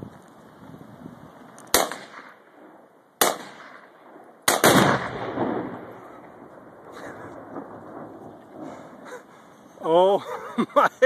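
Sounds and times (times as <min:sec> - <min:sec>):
rifle shots: 0:01.7 - 0:08.3
explosion with rumbling tail: 0:04.6 - 0:09.4.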